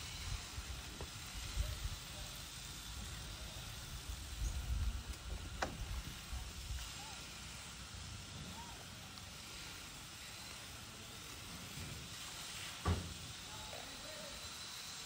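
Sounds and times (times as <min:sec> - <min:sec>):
faint hiss: 0:00.0 - 0:15.0.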